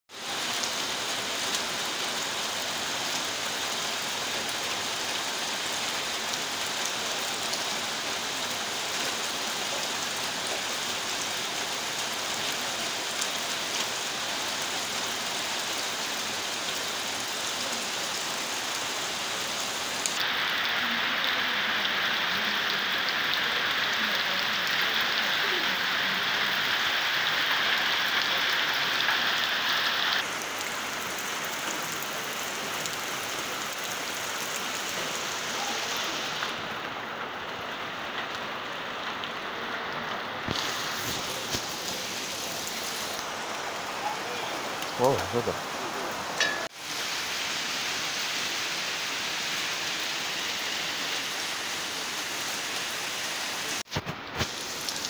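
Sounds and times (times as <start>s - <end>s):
heavy rain falling: 0.1s - 55.0s.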